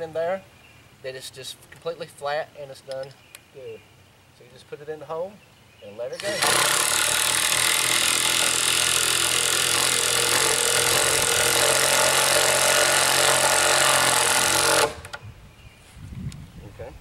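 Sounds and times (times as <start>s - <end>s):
impact driver hammering bolt: 6.2s - 15.2s.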